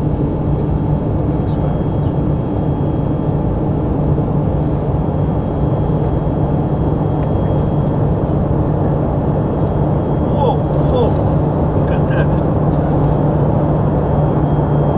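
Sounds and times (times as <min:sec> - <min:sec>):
constant low hum: 0:00.0 - 0:14.9
jet engines: 0:00.0 - 0:14.9.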